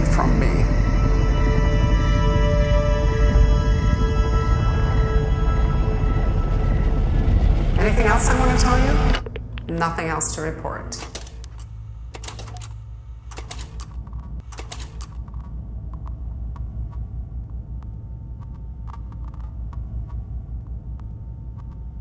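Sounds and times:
steady low hum: 0:00.0 - 0:22.0
sharp clicks and ticks: 0:13.3 - 0:21.9.

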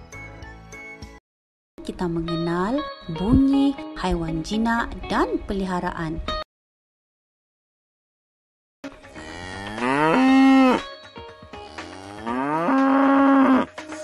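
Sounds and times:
cow mooing: 0:09.1 - 0:10.9, 0:11.6 - 0:13.7.

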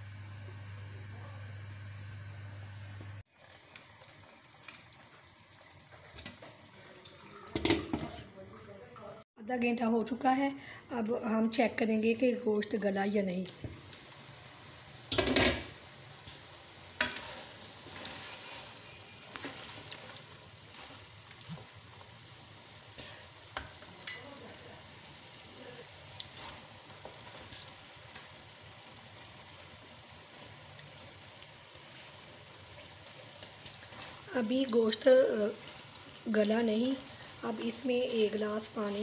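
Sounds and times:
curry sizzling in a pan: 0:00.0 - 0:08.2, 0:11.1 - 0:39.0
wooden spatula scraping a pan: 0:17.0 - 0:21.7.

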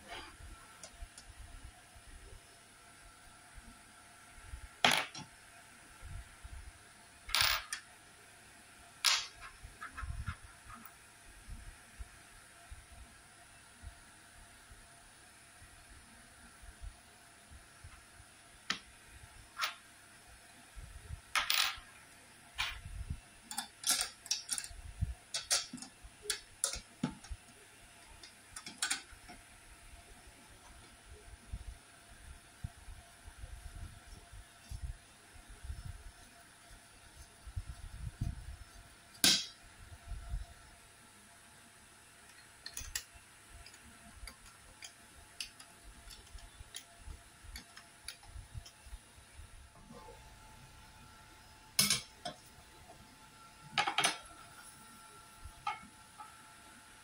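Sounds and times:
metal clicks taps and scrapes: 0:23.5 - 0:29.4, 0:42.2 - 0:46.9, 0:47.5 - 0:48.8, 0:55.6 - 0:56.3.

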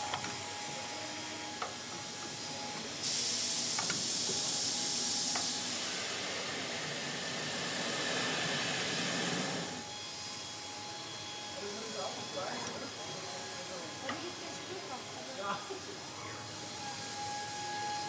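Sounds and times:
compressed air hissing: 0:03.0 - 0:09.8.

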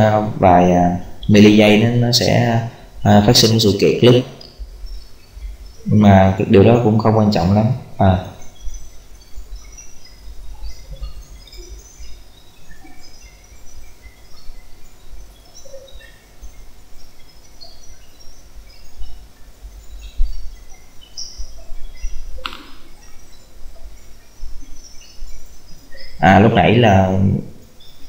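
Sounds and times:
birds chirping: 0:00.0 - 0:28.0
sharp knock: 0:22.4 - 0:22.9.

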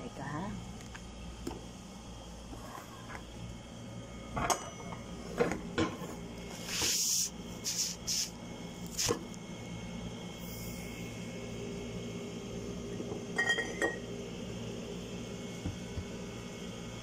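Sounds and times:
steady low hum: 0:00.0 - 0:17.0
short hissing scrapes: 0:06.6 - 0:08.4.

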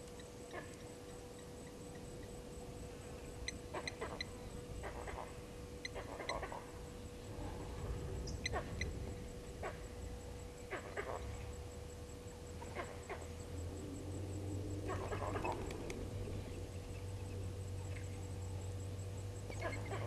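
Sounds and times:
monkeys barking alarm calls: 0:03.5 - 0:06.8, 0:08.3 - 0:09.0, 0:10.7 - 0:11.4, 0:12.6 - 0:13.3, 0:14.8 - 0:15.7, 0:19.5 - 0:20.0.

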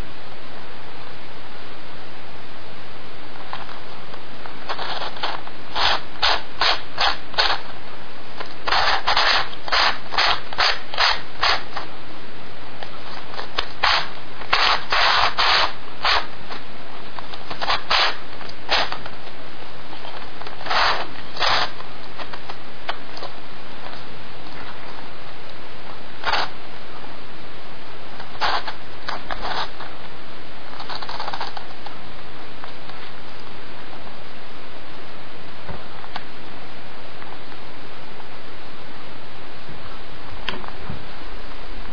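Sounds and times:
puzzle pieces scraping and clicking: 0:04.7 - 0:07.6, 0:08.4 - 0:11.9, 0:13.2 - 0:16.6, 0:17.4 - 0:19.2, 0:20.0 - 0:22.5, 0:30.8 - 0:31.8.

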